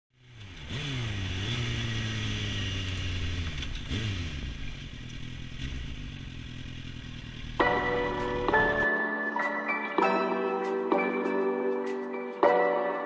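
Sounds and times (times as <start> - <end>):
motorcycle engine running: 0.1 - 8.8.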